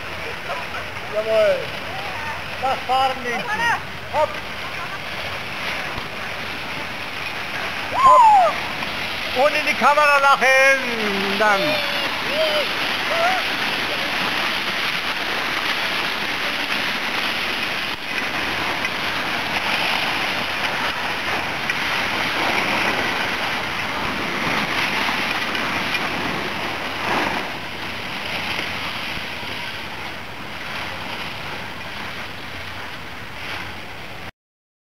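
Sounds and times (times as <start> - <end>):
skis scraping over snow: 8.6 - 31.9.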